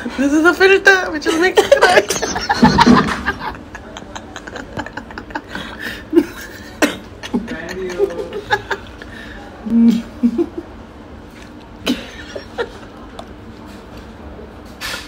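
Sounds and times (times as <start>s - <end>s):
faint steady hum: 0.0s - 15.0s
woman giggling: 1.2s - 10.7s, 11.8s - 13.0s.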